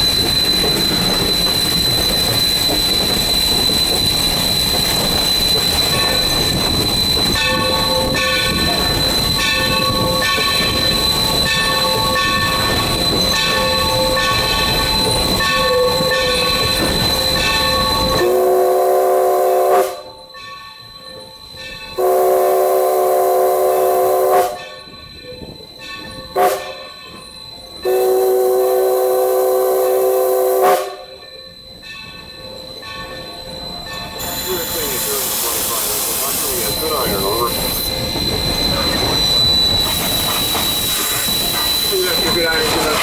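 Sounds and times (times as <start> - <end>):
high ringing: 0.0 - 18.4, 31.0 - 43.0
locomotive chime whistle: 0.0 - 43.0
steam locomotive running: 0.0 - 43.0.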